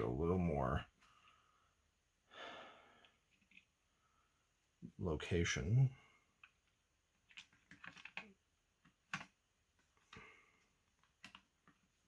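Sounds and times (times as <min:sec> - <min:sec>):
plastic parts clicking: 0:06.4 - 0:09.4.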